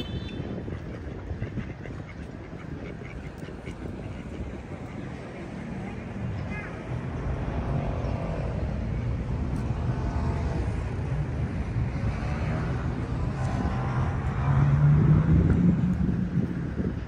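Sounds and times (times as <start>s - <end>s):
faint voices: 0.8s - 11.1s.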